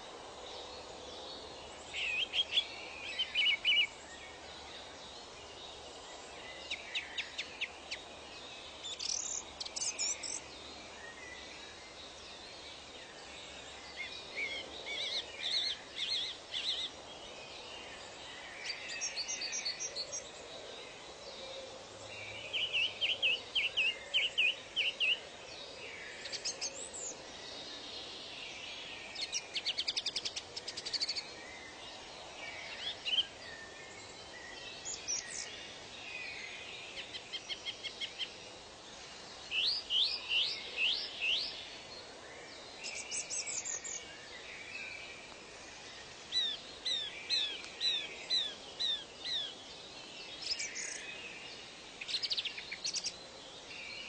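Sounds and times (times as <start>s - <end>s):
faint background hiss: 0.0s - 54.0s
birds chirping and trilling: 0.6s - 54.0s.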